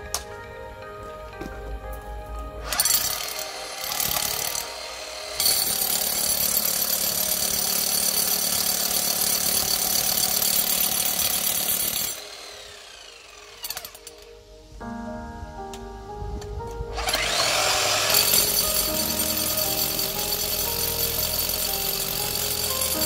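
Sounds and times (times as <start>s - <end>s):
drill motor winding down: 2.6s - 14.3s, 16.9s - 23.0s
hammer drill drilling concrete: 2.6s - 14.3s, 17.0s - 23.0s.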